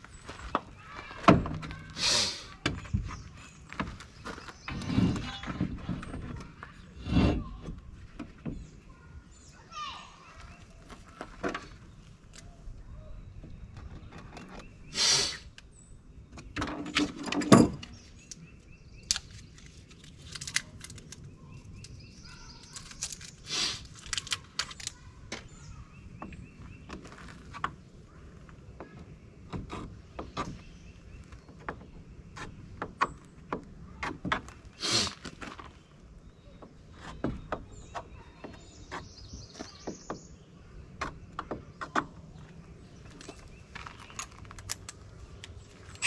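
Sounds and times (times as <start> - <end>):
hardware clattering: 16.6 - 18.0.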